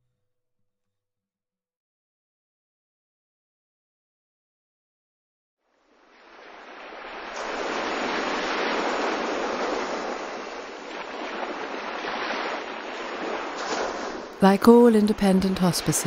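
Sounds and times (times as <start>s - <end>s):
sea surf washing on beach: 5.7s - 16.0s.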